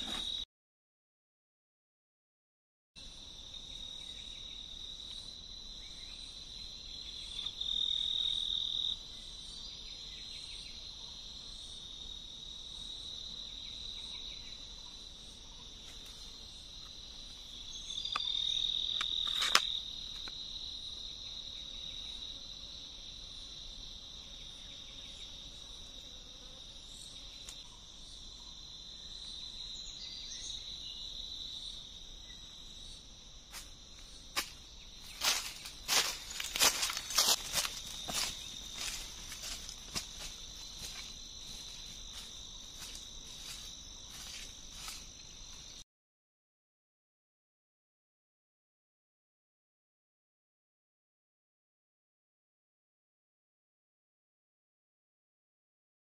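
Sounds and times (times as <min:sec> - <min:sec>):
high-pitched insect trill: 0:03.0 - 0:45.8.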